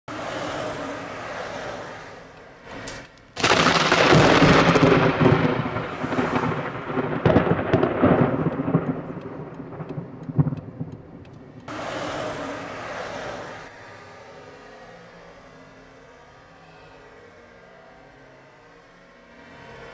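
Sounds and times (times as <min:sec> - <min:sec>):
thunder crack and rumble: 0:02.8 - 0:13.7.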